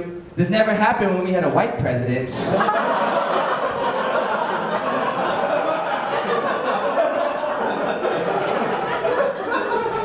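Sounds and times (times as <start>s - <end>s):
audience laughing: 2.4s - 10.0s
crowd chatter: 3.4s - 10.0s.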